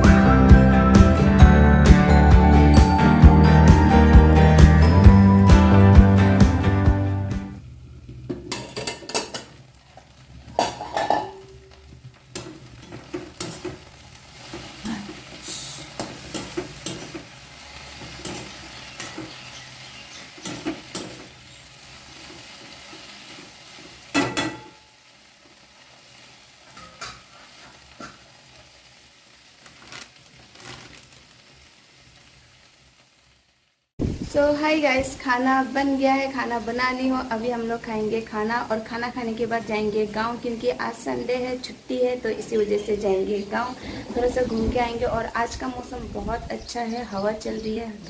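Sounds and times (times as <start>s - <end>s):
vegetables sizzling in oil: 7.4s - 48.0s
metal spatula scraping a pan: 14.4s - 23.2s.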